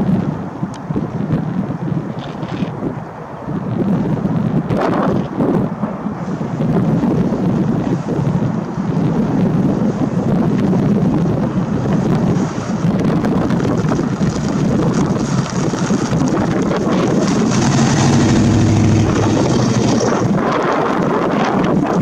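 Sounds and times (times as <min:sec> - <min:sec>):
car engine driving past: 0:17.0 - 0:20.4.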